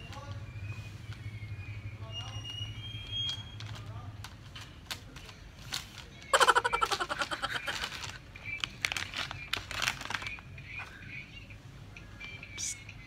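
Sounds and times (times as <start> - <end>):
small clicks and rustles: 2.5 - 6.3, 7.6 - 11.0
man stifling a laugh: 6.3 - 7.9.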